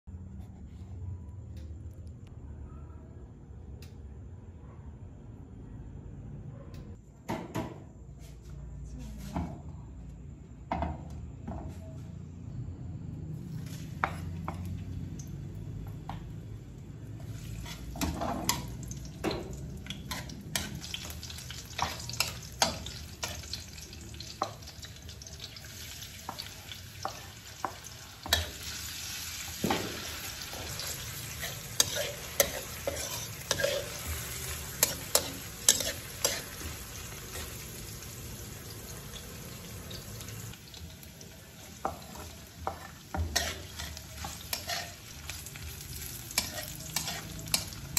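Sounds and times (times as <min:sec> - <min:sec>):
garlic and onion sizzling: 0:13.2 - 0:47.9
metal spatula scraping wok: 0:17.2 - 0:18.9, 0:28.2 - 0:38.2, 0:41.8 - 0:47.9.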